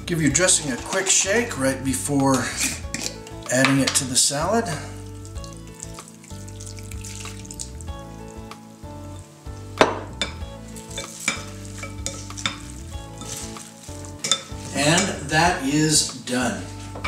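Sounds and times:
wet rustling of salad stirring: 0.6 - 1.4, 2.3 - 4.1, 4.9 - 8.4, 10.2 - 15.3
wooden spoons clacking on glass: 14.2 - 15.1.

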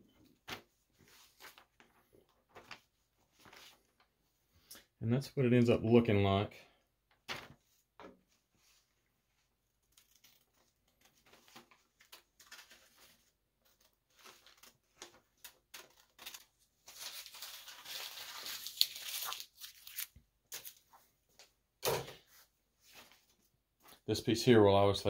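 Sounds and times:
paper rustling: 0.3 - 4.1, 7.3 - 21.4
paper crinkling: 0.4 - 4.1, 8.6 - 21.1.

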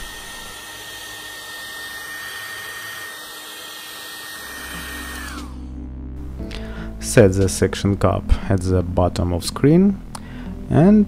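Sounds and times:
hair dryer blowing with whine: 0.0 - 5.7.

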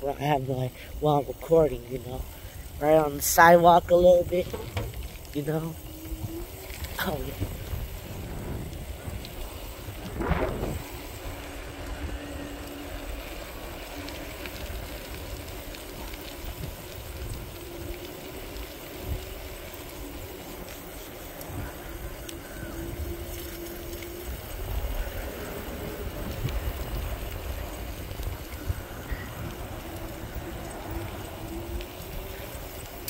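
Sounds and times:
wind and tyre rumble: 0.0 - 33.0
electric motor whine: 4.2 - 33.0.

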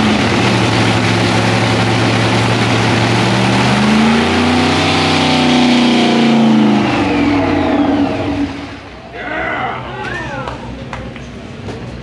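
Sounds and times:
drag racing engine revving: 0.0 - 9.2.

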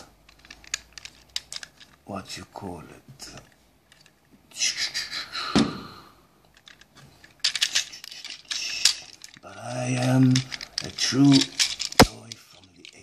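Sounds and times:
small clicks and rattles: 0.0 - 2.1, 3.2 - 4.3, 6.4 - 13.0
toy robot handling noise: 0.0 - 2.1, 3.3 - 4.3, 6.5 - 13.0.

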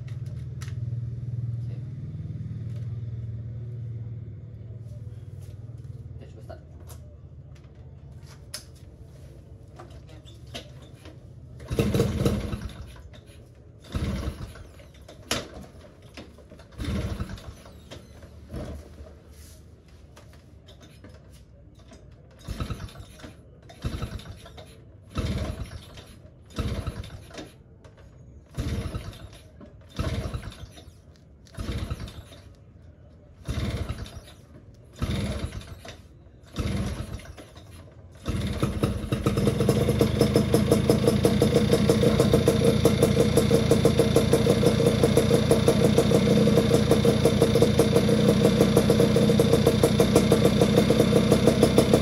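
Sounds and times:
motorcycle kick-start: 10.5 - 18.9, 20.7 - 32.6, 33.4 - 52.0
motorcycle engine turning over: 10.6 - 18.9, 21.8 - 27.6, 28.5 - 32.6, 33.3 - 52.0.

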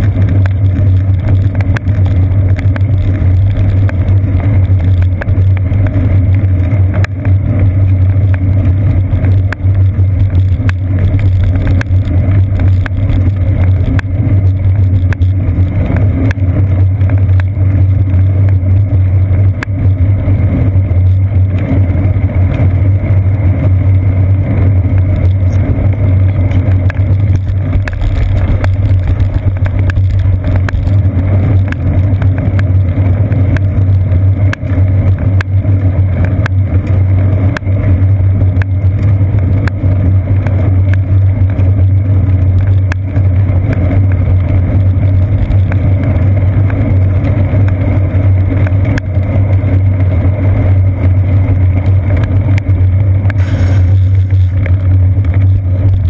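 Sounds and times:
bicycle tyres on wet pavement: 0.0 - 56.0
wind noise: 0.0 - 56.0.

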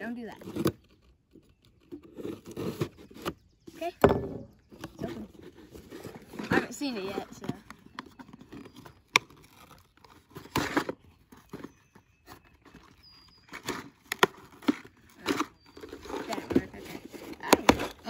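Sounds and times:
cardboard scraping: 0.2 - 18.0.

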